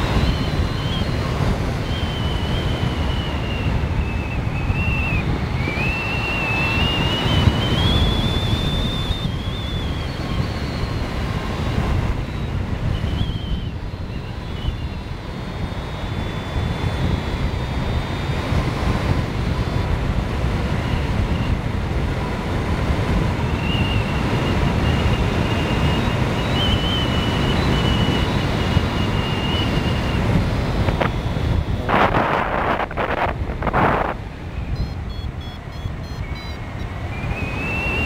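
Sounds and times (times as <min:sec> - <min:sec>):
faint high whistle: 0:00.0 - 0:18.3, 0:23.6 - 0:32.9, 0:34.4 - 0:38.0
wind buffeting microphone: 0:00.0 - 0:38.0.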